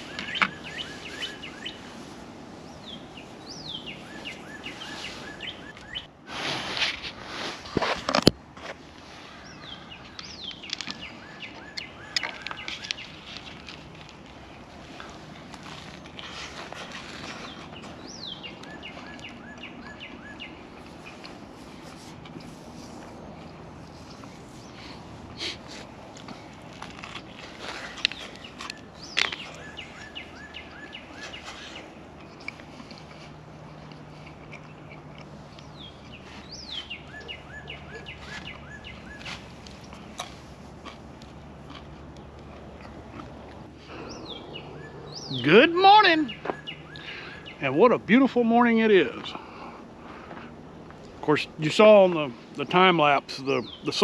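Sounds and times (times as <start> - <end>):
birds whistling and chirping: 0.0 - 6.1, 9.1 - 13.8, 15.9 - 21.3, 27.4 - 33.3, 34.3 - 40.1, 43.8 - 47.9, 53.3 - 54.0
songbird singing: 0.0 - 6.2, 7.8 - 54.0
outdoor background hiss: 0.0 - 54.0.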